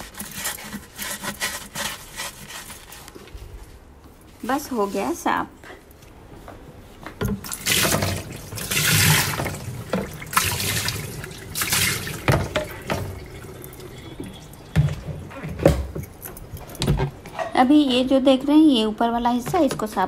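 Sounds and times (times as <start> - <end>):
water splashing into plastic tub: 7.2 - 15.9.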